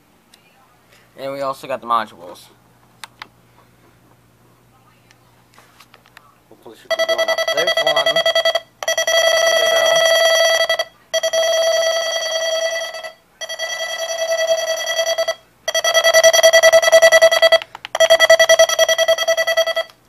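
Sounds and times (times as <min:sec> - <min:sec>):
fast-pulsing electronic alarm beeps: 0:06.9 - 0:19.9.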